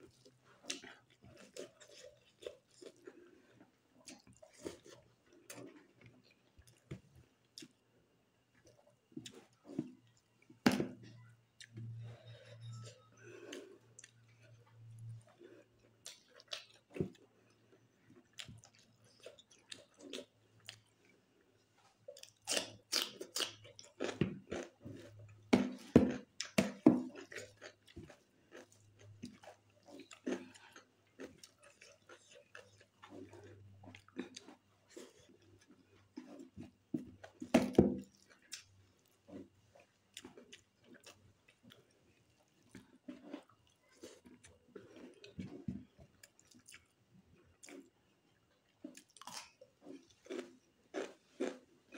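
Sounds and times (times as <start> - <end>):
wet chewing and lip smacks: 38.0 - 47.0.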